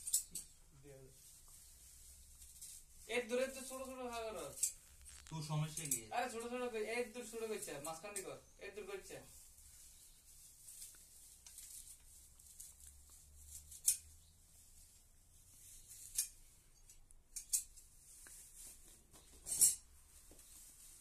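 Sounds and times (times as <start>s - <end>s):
grass stems rustling and snapping: 2.3s - 6.6s, 10.6s - 14.1s.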